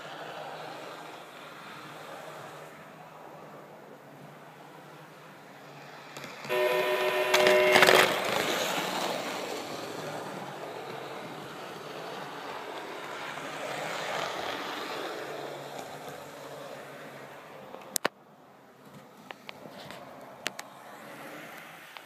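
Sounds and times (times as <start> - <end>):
model train wheels and motor rumble: 0.0 - 18.0
multi-tone train horn: 6.5 - 10.0.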